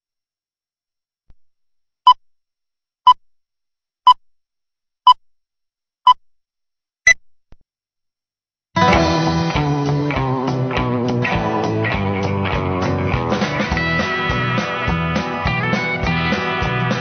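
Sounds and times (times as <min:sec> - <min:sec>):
rock music with electric guitar: 0:08.8 - 0:17.0.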